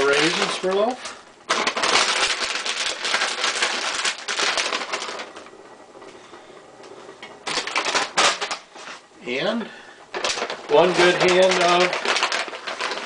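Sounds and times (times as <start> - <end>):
plastic bag rustling: 0.0 - 5.5, 7.4 - 9.1, 10.1 - 13.0.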